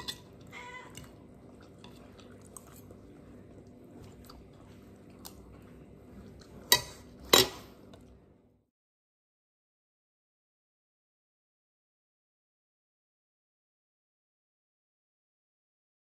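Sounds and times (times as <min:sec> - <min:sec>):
person chewing: 0:00.0 - 0:08.2.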